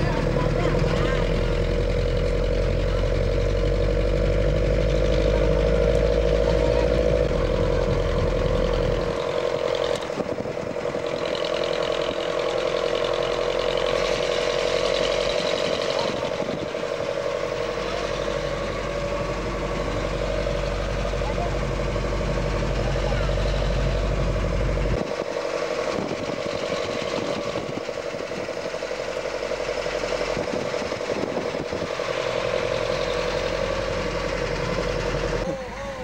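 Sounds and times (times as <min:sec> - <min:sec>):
vehicle engine and road noise: 0:00.0 - 0:36.0.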